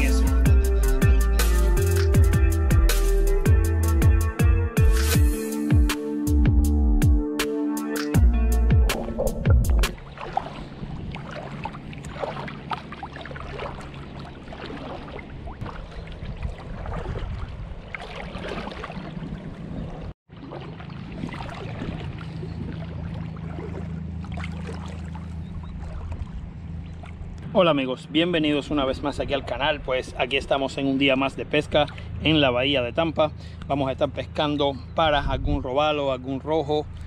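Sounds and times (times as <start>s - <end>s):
water splashing and lapping: 8.0s - 27.5s, 29.2s - 33.7s.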